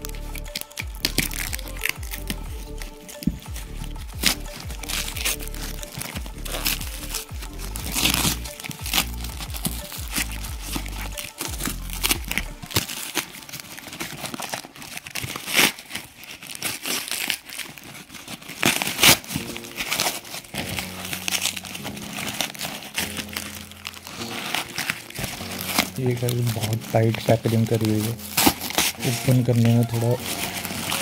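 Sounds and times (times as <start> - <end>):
cardboard tearing and crumpling: 0.0 - 31.0.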